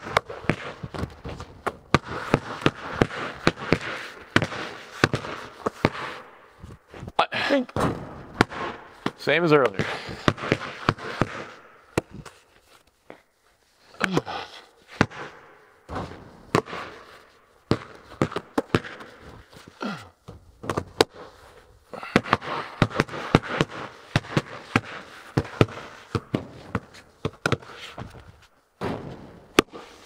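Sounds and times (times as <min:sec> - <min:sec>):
basketballs bouncing on concrete: 0:00.0 - 0:12.4, 0:14.0 - 0:21.3, 0:21.9 - 0:30.0
ball banging off hoop: 0:28.8 - 0:29.7.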